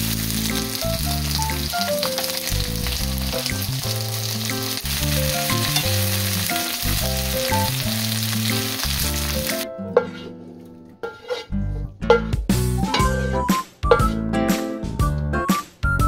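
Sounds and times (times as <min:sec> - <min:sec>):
vegetables sizzling in oil: 0:00.0 - 0:10.2
metal tongs moving vegetables: 0:00.1 - 0:13.3
light tune with bass line: 0:11.5 - 0:16.0.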